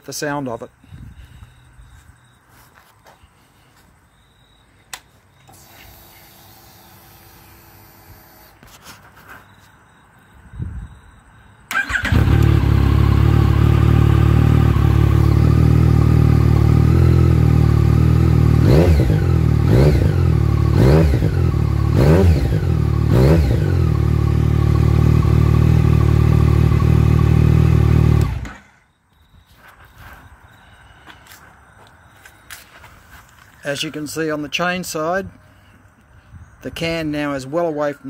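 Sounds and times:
motorcycle engine idling and revving: 0:11.7 - 0:28.8.

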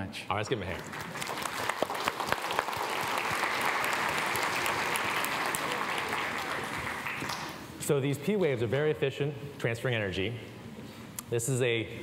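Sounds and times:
audience applauding: 0:00.8 - 0:07.7.

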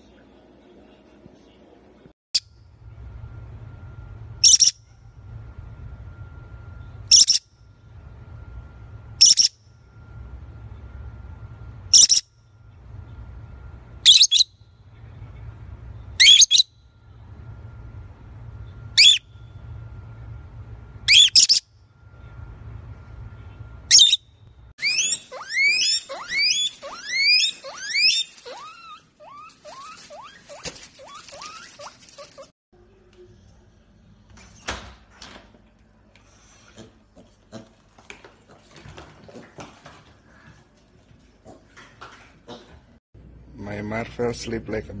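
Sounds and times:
parrot squawking: 0:04.4 - 0:04.8, 0:07.1 - 0:07.4, 0:09.2 - 0:09.5, 0:11.9 - 0:12.2, 0:14.1 - 0:14.5, 0:16.2 - 0:16.7, 0:19.0 - 0:19.2, 0:21.1 - 0:21.6, 0:23.9 - 0:24.2, 0:24.8 - 0:32.5
guinea pig wheeking: 0:24.8 - 0:32.5.

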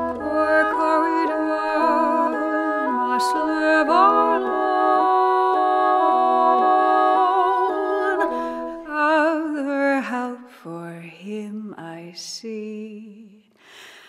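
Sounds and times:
woodwinds holding sustained chords: 0:00.0 - 0:09.4.

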